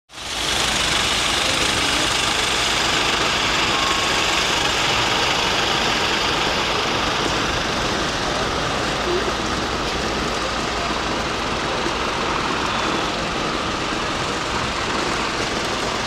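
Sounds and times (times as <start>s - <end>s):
aircraft turbine rushing: 0.1s - 16.0s.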